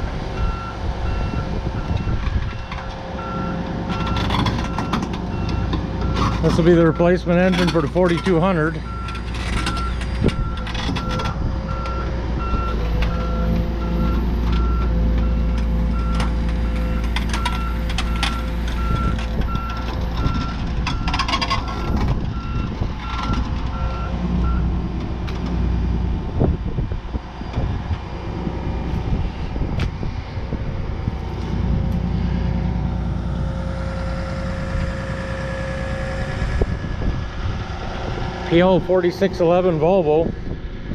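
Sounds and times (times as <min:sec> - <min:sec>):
diesel engine running: 0:00.0 - 0:40.9
backup alarm beeping: 0:00.4 - 0:06.3.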